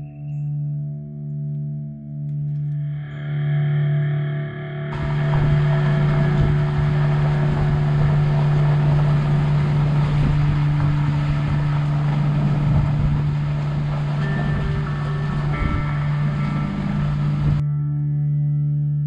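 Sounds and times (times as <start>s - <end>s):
low drone background music: 0.0s - 19.0s
wind rumbling on microphone: 4.9s - 17.6s.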